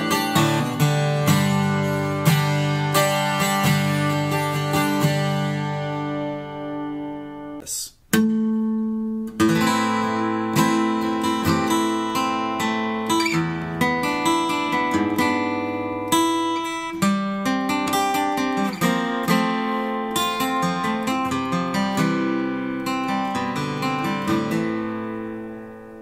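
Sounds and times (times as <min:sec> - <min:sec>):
acoustic guitar music: 0:00.0 - 0:26.0.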